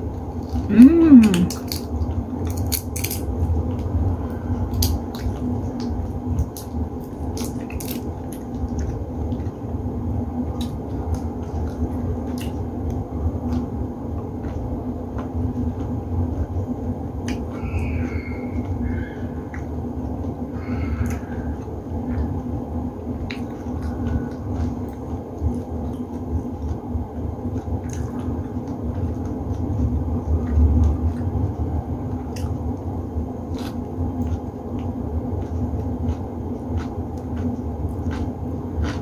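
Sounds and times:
shrimp being peeled and chewed: 0.0s - 39.0s
steady low hum: 0.0s - 39.0s
clicks and crackles of shells: 1.6s - 3.3s.

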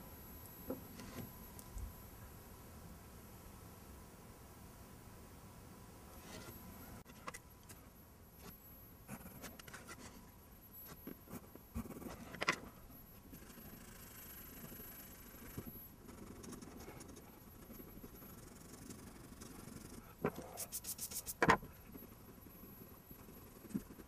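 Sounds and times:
faint rubbing on paper: 13.4s - 21.5s.

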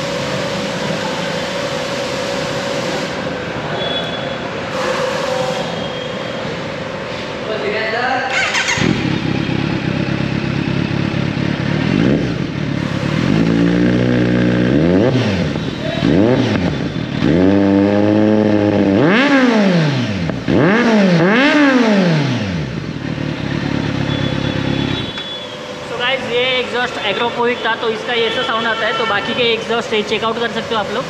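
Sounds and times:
motorcycle engine idling and revving: 0.0s - 3.6s, 8.2s - 27.0s.

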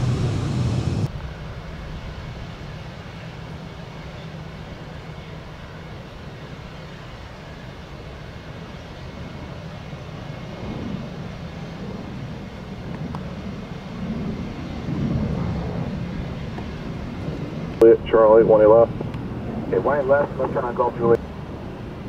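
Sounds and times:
jet airliner engines rumbling: 0.0s - 22.0s.

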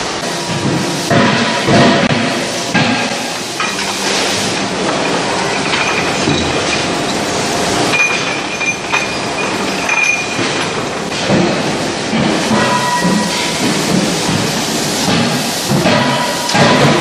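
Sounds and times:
factory din: 0.0s - 17.0s
steel billets clinking: 3.6s - 11.1s
chain conveyor rattling: 3.6s - 14.5s.

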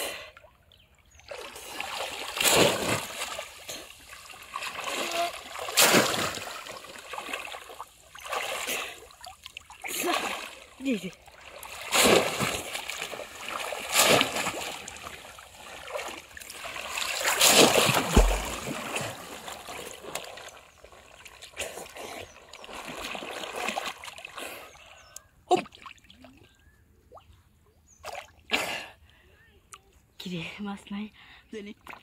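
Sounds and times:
hand splashing water: 1.3s - 10.6s, 11.6s - 19.9s.

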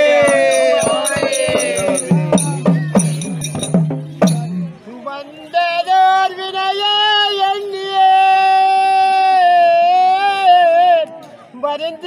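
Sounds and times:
high voice singing unaccompanied: 0.0s - 3.0s
drum note: 0.0s - 4.8s.

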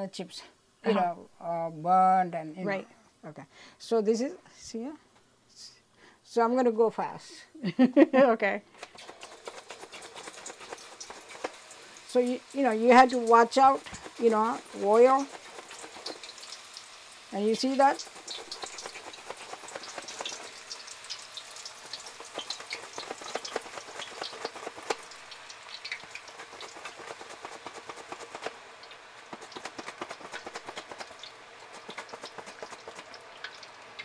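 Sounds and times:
oil crackling and popping: 8.8s - 34.0s
plantain slices sizzling in oil: 8.8s - 34.0s.

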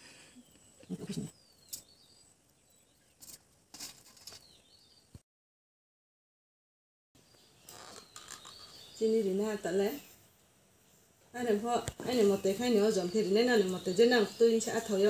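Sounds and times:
birds chirping: 0.0s - 5.2s, 7.2s - 10.2s, 11.4s - 15.0s.

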